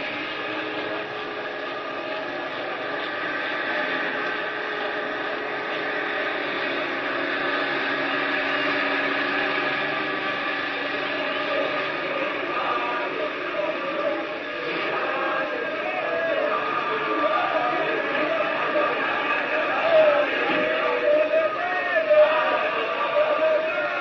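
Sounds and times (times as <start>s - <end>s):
droning hum of held tones: 0.0s - 24.0s.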